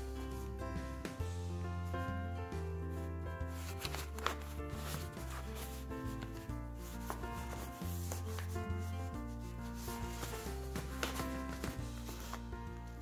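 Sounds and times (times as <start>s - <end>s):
background music: 0.0s - 13.0s
paper rustling and scraping: 3.5s - 13.0s.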